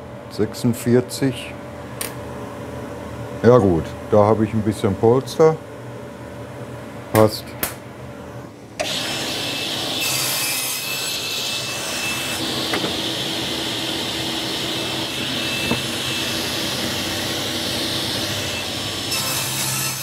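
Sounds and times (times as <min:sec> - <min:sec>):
table saw cutting wood: 0:08.8 - 0:20.0.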